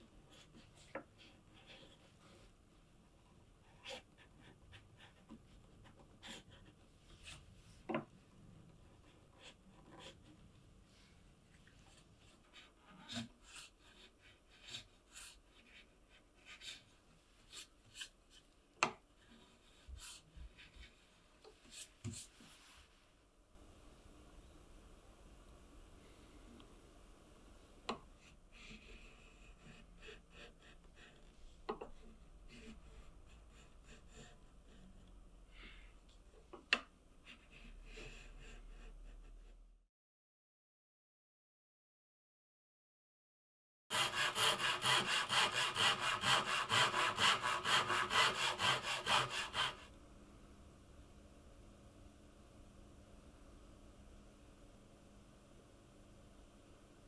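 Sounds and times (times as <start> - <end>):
hand plane scraping wood: 43.9 - 49.9.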